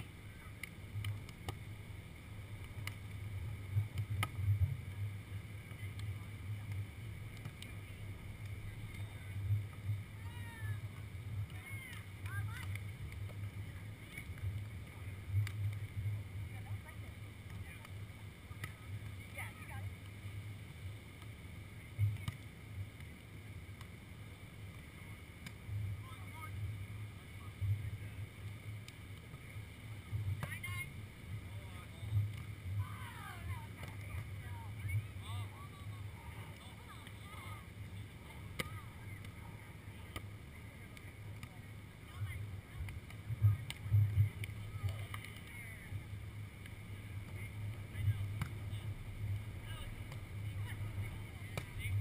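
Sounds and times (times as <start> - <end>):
wind rumble on microphone: 0.0 - 52.0
hands smacking a volleyball: 2.6 - 3.1, 3.9 - 4.4, 7.4 - 7.8, 22.1 - 23.1, 40.0 - 40.3, 40.9 - 41.6, 42.8 - 45.5, 46.6 - 48.6, 51.5 - 51.8
faint sharp taps: 2.6 - 3.2, 5.6 - 7.8, 10.9 - 13.4, 22.0 - 22.4, 40.0 - 40.3, 40.9 - 45.6, 46.6 - 48.6, 51.4 - 52.0.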